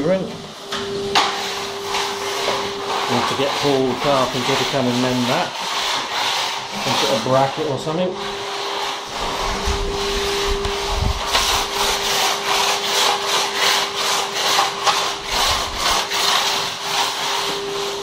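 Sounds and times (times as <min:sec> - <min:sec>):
rhythmic rasping strokes: 0:01.1 - 0:18.0
steady hum: 0:08.2 - 0:16.4.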